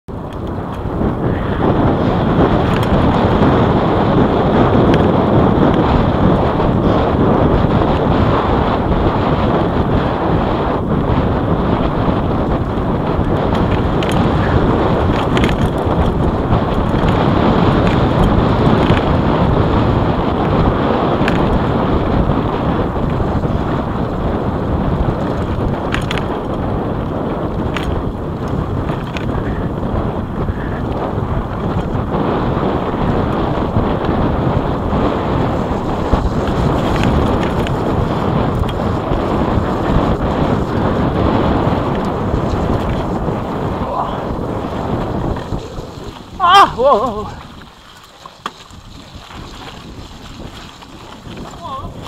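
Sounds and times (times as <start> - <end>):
wind rushing over microphone: 0.0 - 52.0
tyres rolling on dirt trail: 0.1 - 52.0
sharp clicks and rattles: 2.6 - 3.2, 13.2 - 17.2, 25.2 - 26.6.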